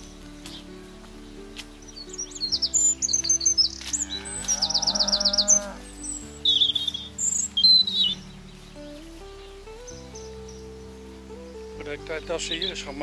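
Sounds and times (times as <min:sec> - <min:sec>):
background music: 0:00.0 - 0:13.0
small birds chirping: 0:00.0 - 0:13.0
cow mooing: 0:03.9 - 0:06.0.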